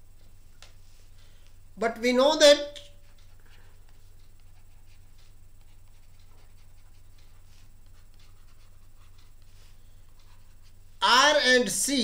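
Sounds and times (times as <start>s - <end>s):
low electrical hum: 0.0s - 12.0s
stylus scratching on pen tablet: 2.9s - 10.8s.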